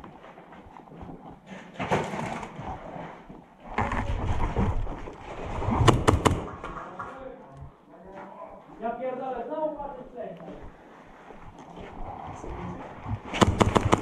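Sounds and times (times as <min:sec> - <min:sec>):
airsoft pistol shots: 0:05.8 - 0:06.5, 0:13.4 - 0:14.0.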